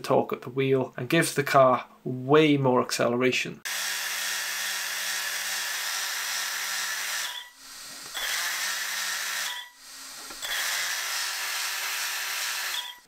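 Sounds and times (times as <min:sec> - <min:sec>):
electric motors whirring through gears: 0:04.1 - 0:13.0.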